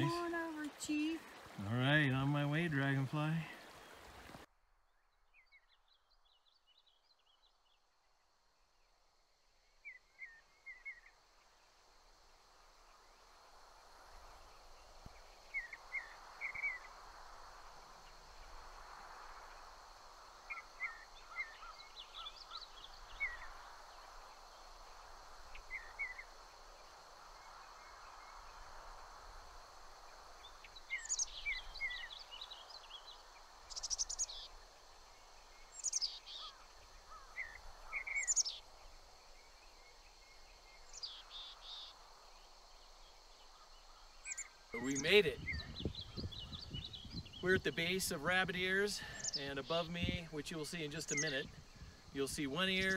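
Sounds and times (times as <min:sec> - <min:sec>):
faint outdoor hiss: 0:00.0 - 0:52.9
bird chirping: 0:20.5 - 0:26.4, 0:30.1 - 0:52.9.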